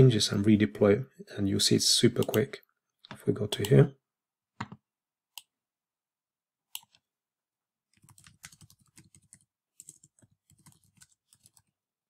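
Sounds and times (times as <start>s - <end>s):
typing on computer keyboard: 8.0s - 11.7s.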